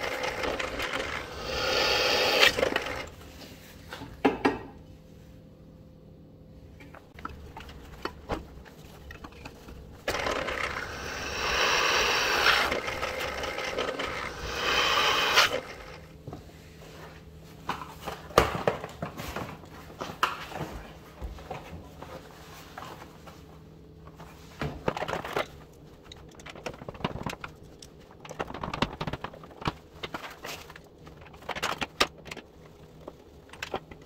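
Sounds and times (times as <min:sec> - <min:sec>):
drill press grinding metal: 0:00.0 - 0:03.1, 0:10.1 - 0:16.0.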